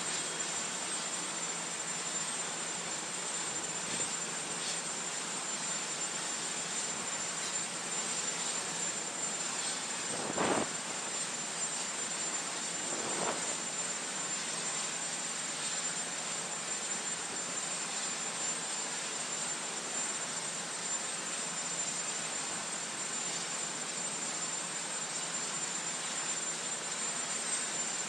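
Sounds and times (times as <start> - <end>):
thin high engine whine: 0.0 - 21.4
aircraft engine rushing: 8.9 - 14.5.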